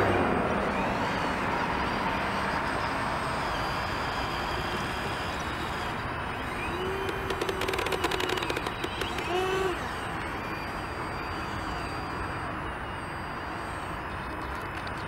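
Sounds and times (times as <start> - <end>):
steady engine tone: 0.0 - 15.0
quick clicks: 3.5 - 12.2.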